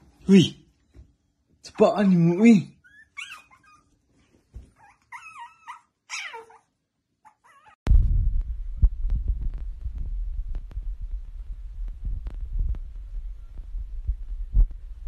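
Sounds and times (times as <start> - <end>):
dog whining: 2.8 - 4.0, 4.6 - 7.8
low rumble with knocks: 7.9 - 15.0.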